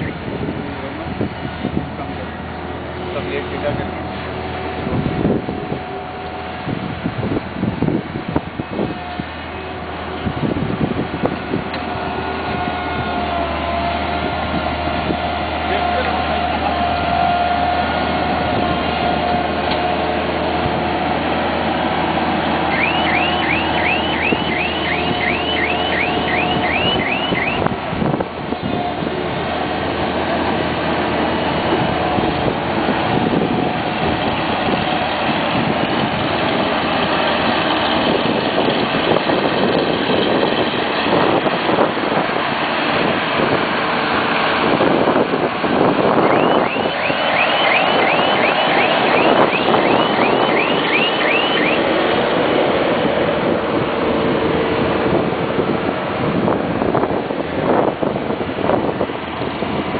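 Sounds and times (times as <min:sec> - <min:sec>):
loader engine running under load: 0:00.0 - 0:59.9
repeated high chirp: 0:22.7 - 0:27.6, 0:46.3 - 0:51.8.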